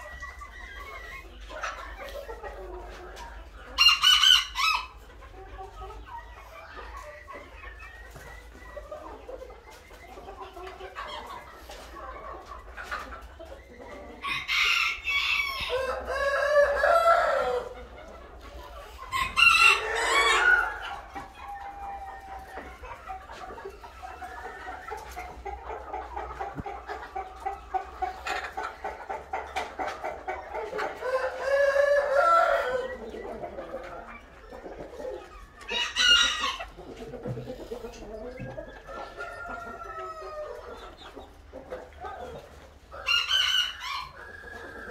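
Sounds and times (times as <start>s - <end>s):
roosters crowing: 3.8s - 5.0s, 14.1s - 22.7s, 30.8s - 33.1s, 35.6s - 40.9s, 42.9s - 44.9s
rapid rhythmic clucking: 4.9s - 14.5s, 16.6s - 31.8s, 32.8s - 42.9s.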